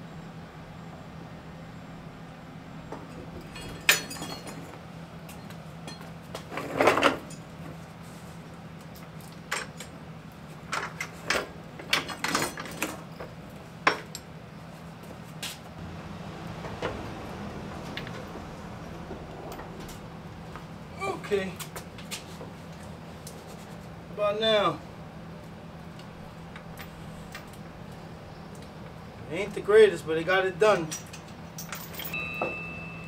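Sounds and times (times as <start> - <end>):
steady low hum: 13.1 - 32.1
chain links clinking: 30.8 - 33.0.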